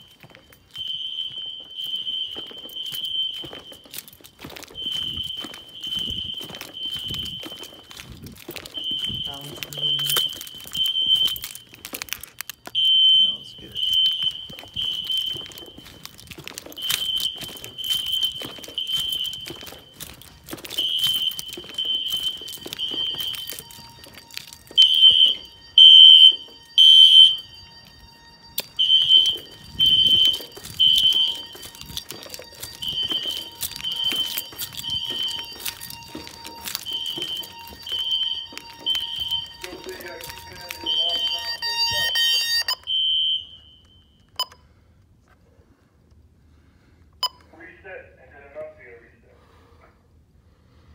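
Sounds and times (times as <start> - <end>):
handling rustle: 0.0 - 12.8, 13.7 - 25.7, 27.4 - 41.7
footsteps: 0.0 - 42.8
fire alarm horn beeps: 0.0 - 44.7.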